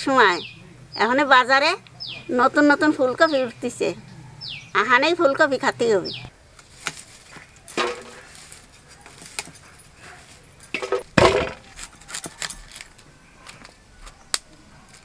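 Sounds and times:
cauliflower stalks snapping: 6.6 - 9.6.

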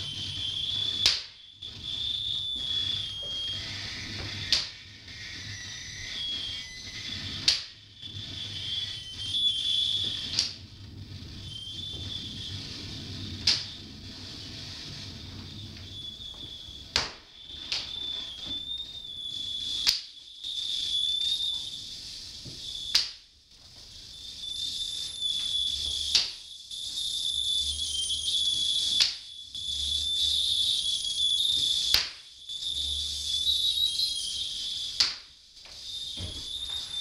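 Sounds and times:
electronic drone with whistling tone: 0.0 - 37.0.

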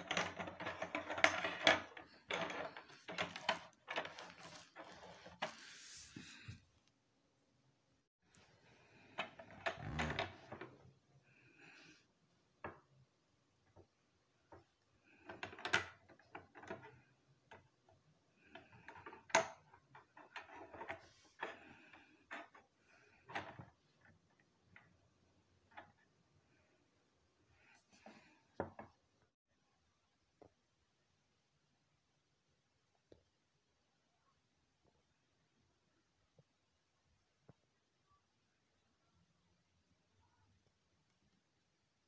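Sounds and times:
plastic cubes clicking and knocking: 0.0 - 5.5, 14.5 - 26.1.

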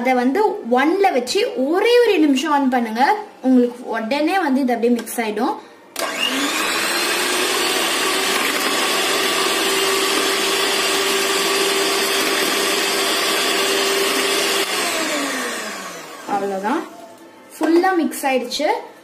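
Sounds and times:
electric hand mixer whirring: 6.0 - 17.1.

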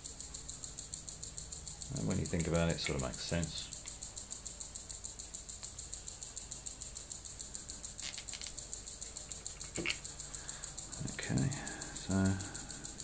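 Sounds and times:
pulsing high-pitched hiss: 0.0 - 13.0
cable and cable ties rustling: 8.0 - 8.6, 9.3 - 10.0.

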